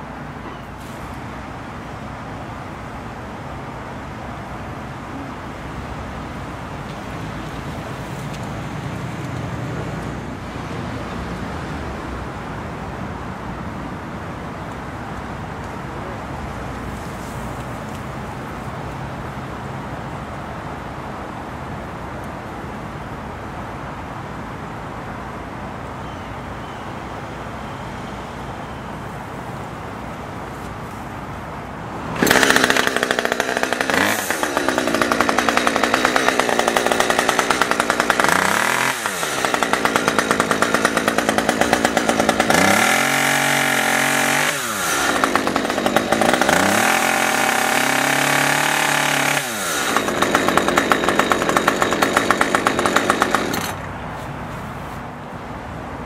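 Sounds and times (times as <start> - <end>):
chainsaw engine revving: 32.1 - 53.8.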